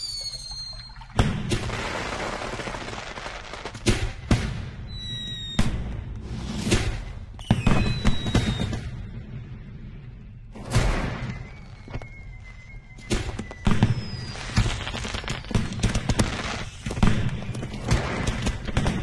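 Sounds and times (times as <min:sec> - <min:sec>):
fireworks bangs and crackles: 0:00.0 - 0:09.8, 0:10.5 - 0:19.0
music: 0:06.1 - 0:14.4.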